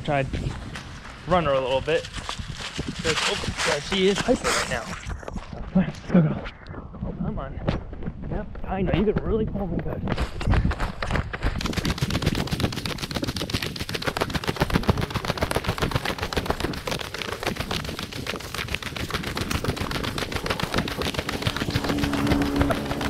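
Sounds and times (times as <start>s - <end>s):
running footsteps on pavement: 0.0s - 6.0s, 7.5s - 23.0s
camera rattling and knocking: 7.7s - 23.0s.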